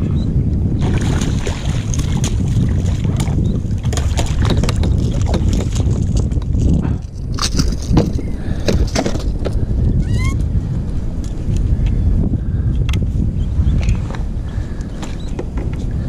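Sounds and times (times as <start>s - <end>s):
wind buffeting microphone: 0.0s - 16.0s
water splashing around kayak: 0.6s - 9.6s.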